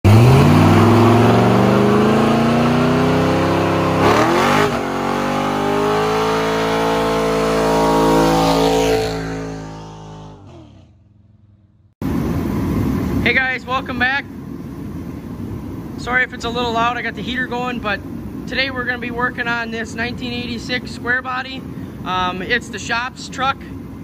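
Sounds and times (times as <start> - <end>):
pickup engine revving hard: 0.0 - 10.9.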